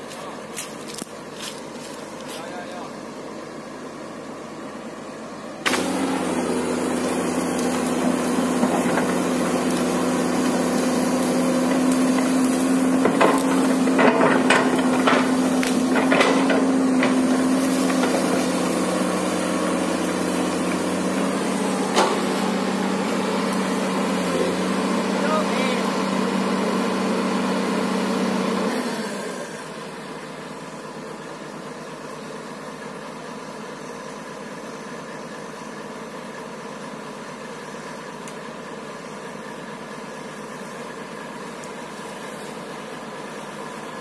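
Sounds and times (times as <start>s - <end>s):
excavator diesel engine: 0.0s - 44.0s
wood cracking and branches snapping: 0.1s - 2.4s, 5.6s - 24.3s, 40.6s - 42.6s.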